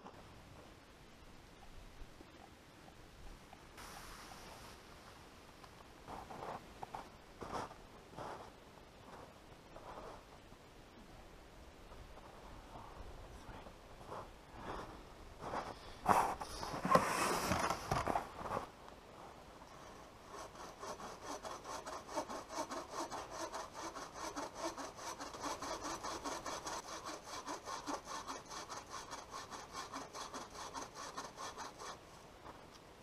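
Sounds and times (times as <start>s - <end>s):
rustling and knocking: 15.4s - 18.7s
bow saw cutting wood: 19.8s - 32.0s.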